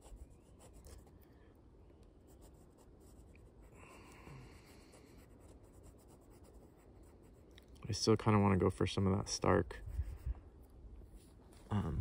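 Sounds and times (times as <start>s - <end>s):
fountain pen scratching on paper: 0.0s - 1.1s, 4.9s - 7.4s.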